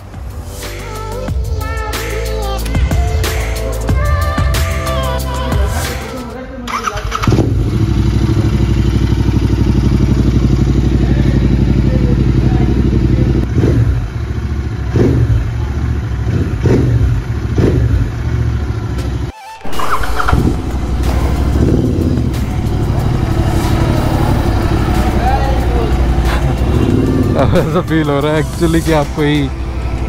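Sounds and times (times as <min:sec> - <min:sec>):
motorcycle engine idling: 0:06.8 - 0:30.0.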